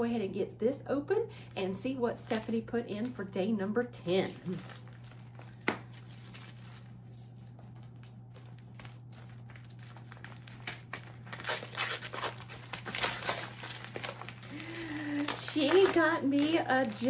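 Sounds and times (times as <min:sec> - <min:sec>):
faint low hum: 0:00.0 - 0:17.0
wrapping paper crinkling: 0:04.1 - 0:17.0.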